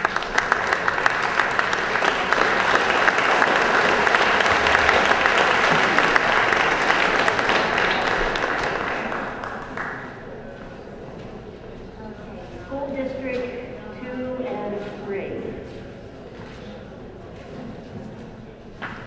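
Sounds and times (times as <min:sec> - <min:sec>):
audience applauding: 0:00.0 - 0:10.3.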